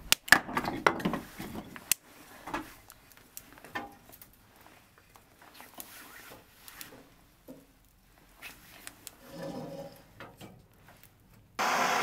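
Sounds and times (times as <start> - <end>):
firewood knocking and clunking: 0.0 - 2.7.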